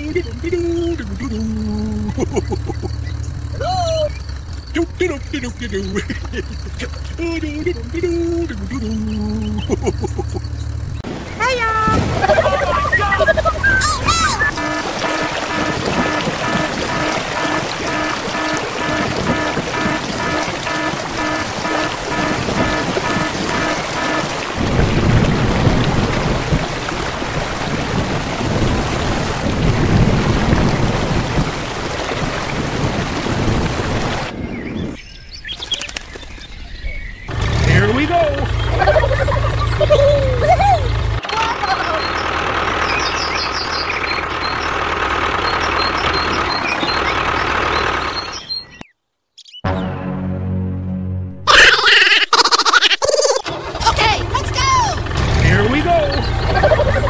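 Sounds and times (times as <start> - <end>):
tractor engine running: 0.0 - 34.3, 37.3 - 48.8, 53.4 - 57.0
heavy rain falling: 0.0 - 34.4, 37.3 - 48.4, 53.5 - 57.0
thunder rumbling: 10.8 - 35.0.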